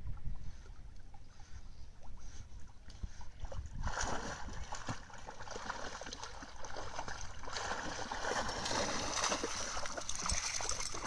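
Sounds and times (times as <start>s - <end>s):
dogs splashing through water: 3.4s - 11.0s.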